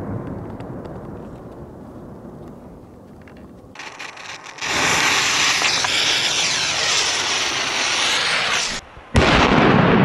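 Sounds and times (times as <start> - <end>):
torch lighter hissing: 3.8 - 8.8
firecracker bang with echo: 4.6 - 10.0.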